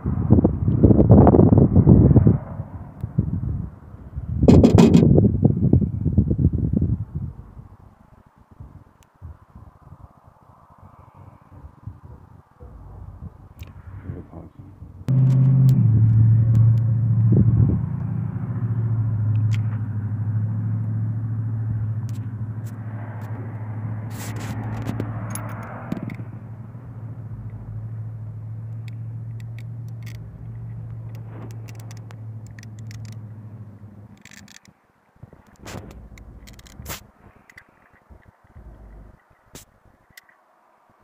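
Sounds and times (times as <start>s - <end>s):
engine humming: 0.3s - 6.2s, 11.5s - 40.3s
faint small clicks: 28.7s - 33.2s, 35.4s - 40.4s.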